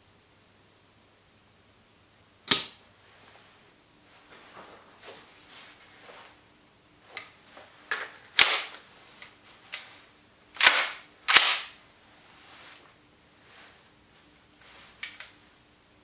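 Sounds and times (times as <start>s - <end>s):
magazine clicks: 8.3s - 8.8s, 10.6s - 11.8s
sharp metallic cracks of rifle action: 8.3s - 8.8s, 10.6s - 11.8s.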